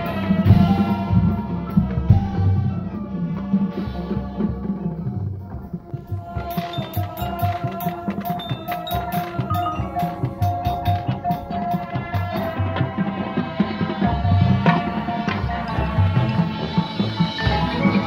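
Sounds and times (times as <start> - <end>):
held brass notes: 0.0 - 18.0
steady drum beat: 0.0 - 18.0
marimbas and mallet percussion: 6.0 - 13.0.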